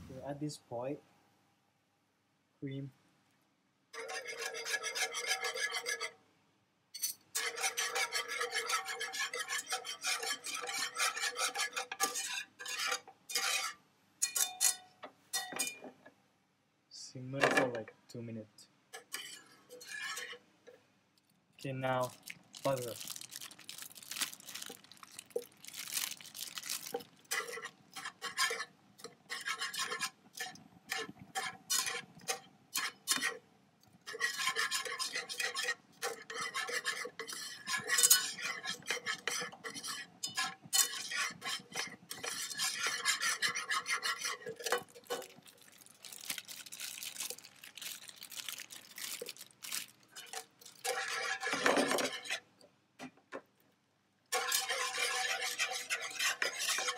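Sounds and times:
whisk scraping frying pan: 4.0 - 6.2, 7.4 - 14.5, 19.0 - 20.4, 22.6 - 33.4, 34.0 - 52.5, 54.3 - 56.9.

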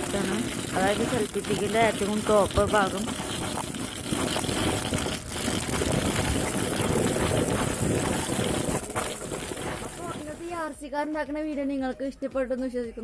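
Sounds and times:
wheels rattling over gravel: 0.0 - 10.7.

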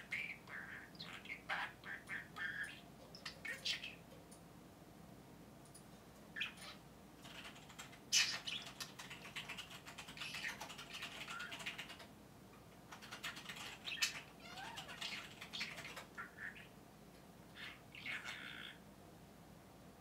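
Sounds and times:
budgerigar warbling and chattering: 0.0 - 4.0, 6.4 - 12.1, 12.9 - 16.7, 17.5 - 18.8.

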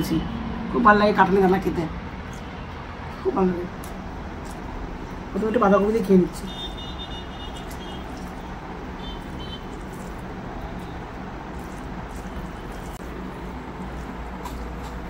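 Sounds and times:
food squishing by hand: 3.7 - 5.4, 6.6 - 15.0.

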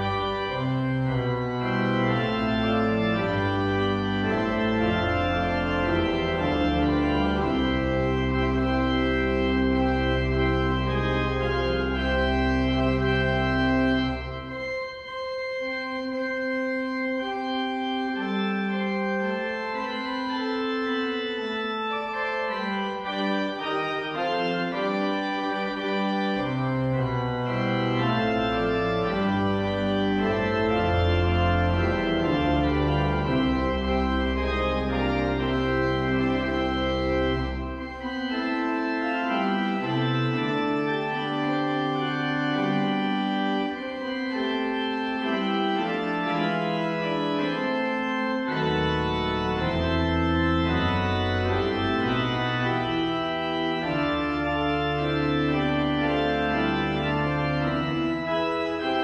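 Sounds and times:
deep organ pedal bass notes: 0.0 - 59.0
pipe organ chords: 0.0 - 59.0.

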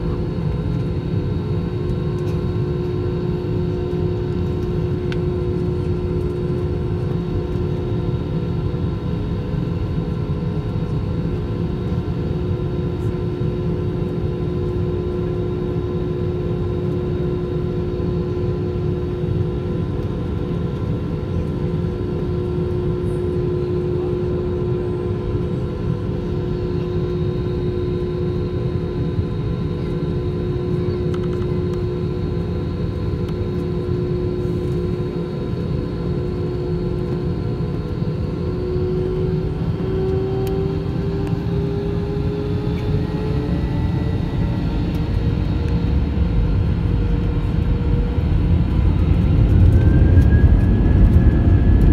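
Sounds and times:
jet engines idling whine: 0.0 - 51.9.

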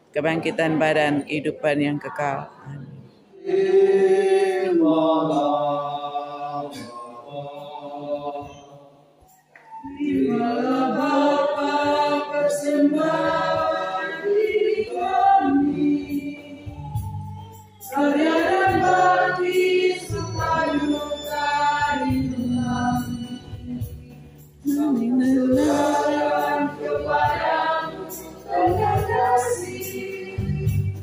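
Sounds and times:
choir singing a hymn: 3.3 - 31.0
electronic keyboard accompaniment: 8.4 - 31.0.

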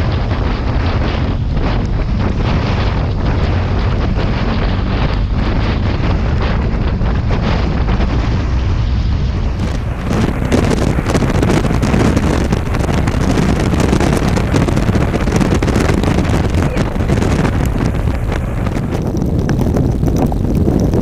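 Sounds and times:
motorcycle engine: 0.0 - 20.4
road noise: 0.0 - 21.0
wind buffeting microphone: 0.0 - 21.0.

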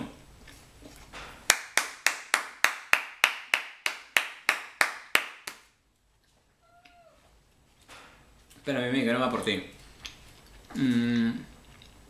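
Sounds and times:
person clapping hands: 1.5 - 5.8.

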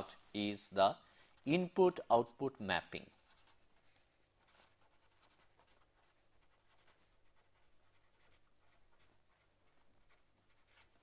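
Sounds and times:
pen scratching on paper: 3.2 - 11.0.

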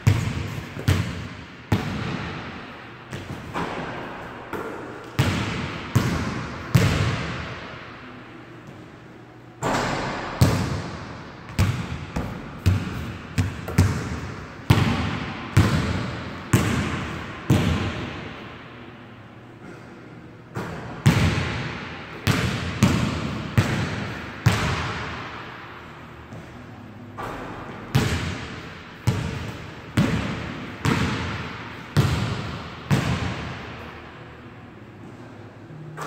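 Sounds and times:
basketball bouncing on wooden floor: 0.0 - 2.3, 11.5 - 18.0, 27.9 - 31.4.

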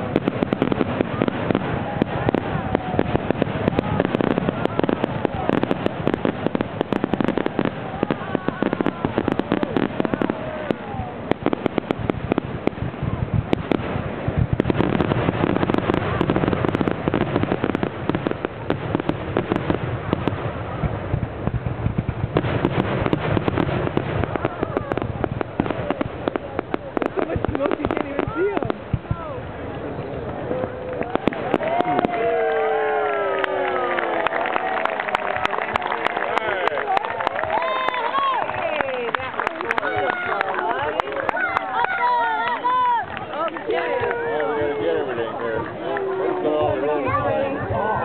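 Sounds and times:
fireworks rapid bangs: 0.0 - 30.4, 31.0 - 33.0.

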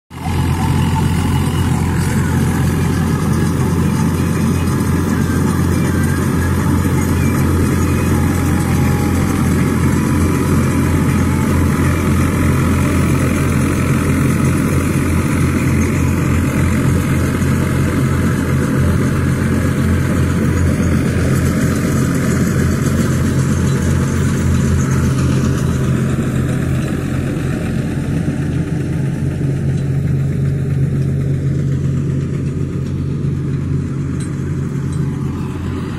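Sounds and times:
straw reaper rushing whir: 0.1 - 35.9
tractor diesel engine running: 0.1 - 35.9.

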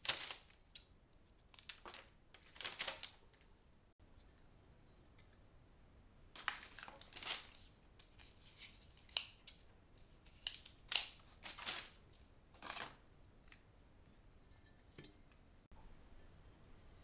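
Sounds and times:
paper wrapping rustling: 0.0 - 3.5, 6.4 - 9.6, 10.2 - 13.0.

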